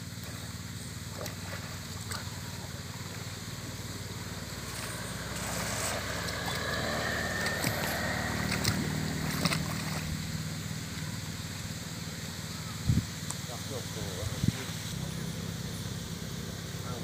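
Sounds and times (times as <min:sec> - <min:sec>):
motor droning: 0:00.0 - 0:17.0
water splashing and dripping: 0:01.0 - 0:03.3, 0:04.6 - 0:11.1.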